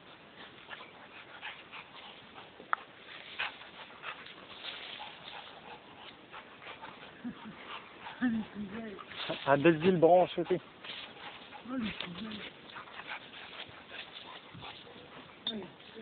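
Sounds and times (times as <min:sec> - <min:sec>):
twigs and leaves crackling: 0:02.8 - 0:06.2, 0:08.4 - 0:16.0.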